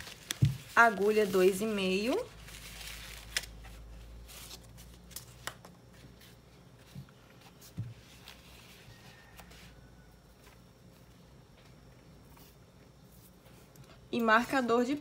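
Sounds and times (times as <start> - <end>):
twine rustling: 0.0 - 5.2.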